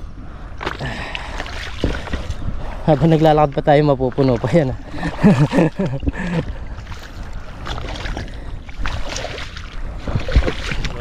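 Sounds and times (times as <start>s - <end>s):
squelching steps through mud: 4.1s - 11.0s.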